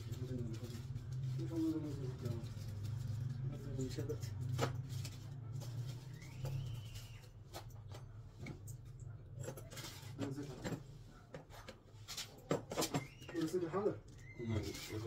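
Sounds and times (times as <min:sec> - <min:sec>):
plastic rustling: 0:00.0 - 0:07.3.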